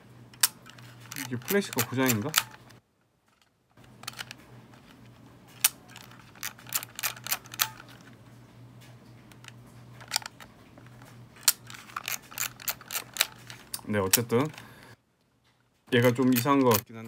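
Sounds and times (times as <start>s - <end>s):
plastic camera clicks: 0.4s - 2.8s, 5.6s - 8.1s, 9.3s - 14.6s.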